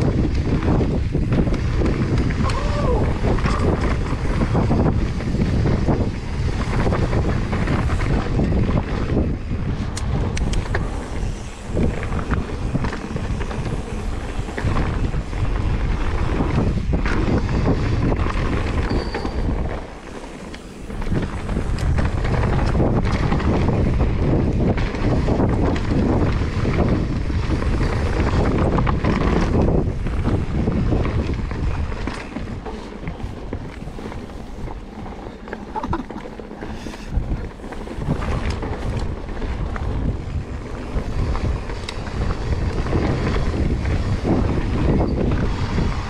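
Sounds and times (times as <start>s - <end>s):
bike knocks and rattles: 0.0s - 46.0s
bike tyre rumble: 0.0s - 46.0s
wind rushing over microphone: 0.0s - 46.0s.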